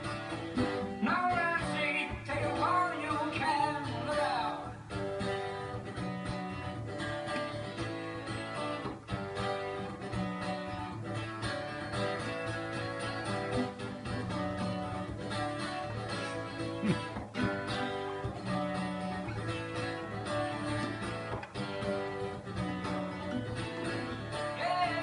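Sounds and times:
classical guitar strumming chords: 0:00.0 - 0:25.0.

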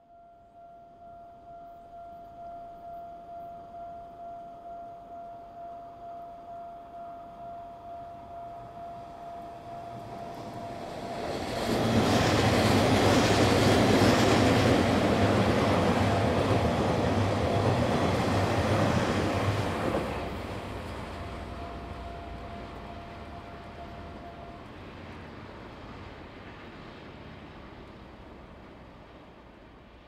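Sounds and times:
train wheels clattering on rails: 0:09.8 - 0:26.9.

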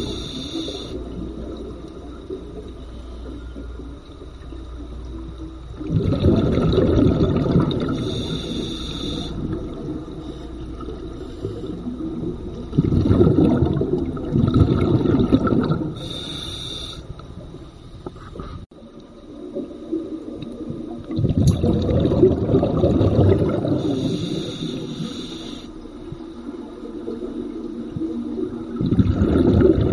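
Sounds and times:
regulator hiss: 0:00.0 - 0:01.6, 0:07.8 - 0:12.2, 0:16.0 - 0:17.2, 0:23.8 - 0:26.0
exhaled bubbles rumbling underwater: 0:00.0 - 0:29.9.

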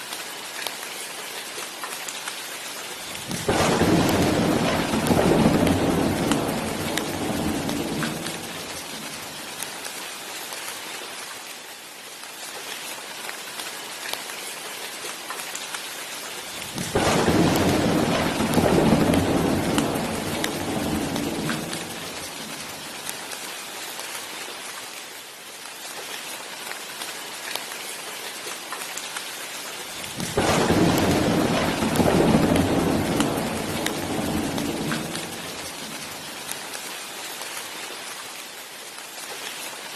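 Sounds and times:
heavy rain: 0:00.0 - 0:39.9
thunder rolling: 0:03.2 - 0:09.2, 0:16.8 - 0:22.9, 0:30.1 - 0:36.5.

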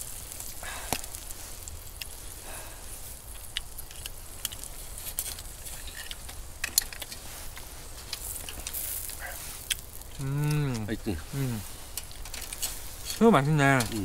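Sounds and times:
shellfish sizzling: 0:00.0 - 0:14.0
metal tongs clinking on grill: 0:03.3 - 0:10.9, 0:11.9 - 0:14.0.

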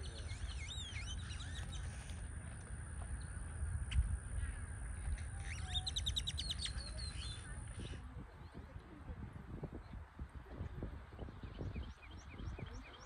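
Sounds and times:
grackle whistled calls: 0:00.0 - 0:02.0, 0:05.4 - 0:07.9.

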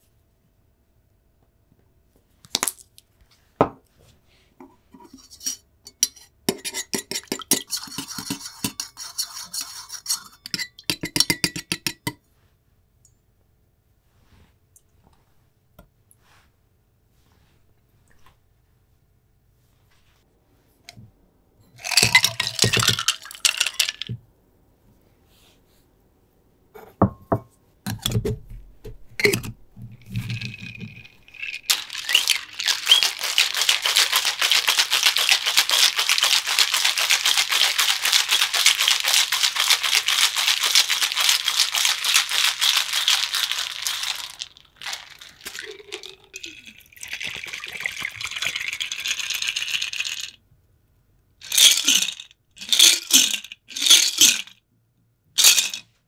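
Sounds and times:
shaker clatter and knocks: 0:04.6 - 0:12.2, 0:21.8 - 0:24.2, 0:27.0 - 0:50.4, 0:51.4 - 0:54.6, 0:55.4 - 0:56.0
ice rattling in cocktail shaker: 0:06.6 - 0:12.1, 0:21.8 - 0:24.2, 0:29.2 - 0:50.4, 0:51.4 - 0:54.6, 0:55.4 - 0:55.9
drink pouring into glass: 0:21.8 - 0:24.0, 0:30.0 - 0:49.8.

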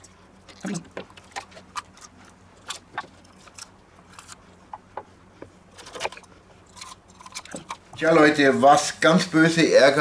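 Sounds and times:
bell peppers snapping and crunching: 0:00.5 - 0:04.4, 0:05.8 - 0:07.8.

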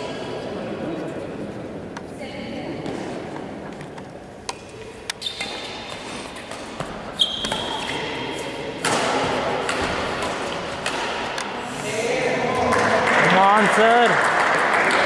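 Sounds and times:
badminton racket hitting shuttlecock: 0:04.4 - 0:11.7.

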